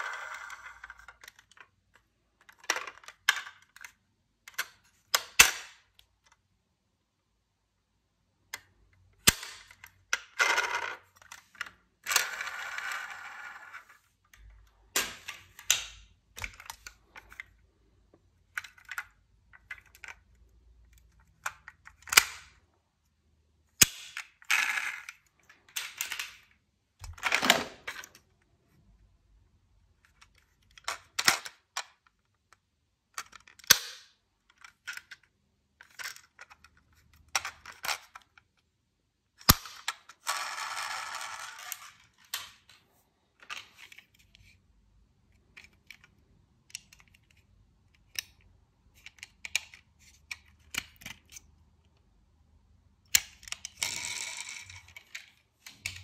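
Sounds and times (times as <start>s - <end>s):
toy cars clicking and clattering: 0.0s - 6.4s, 23.8s - 28.2s, 33.1s - 38.6s, 39.4s - 42.7s, 53.1s - 56.0s.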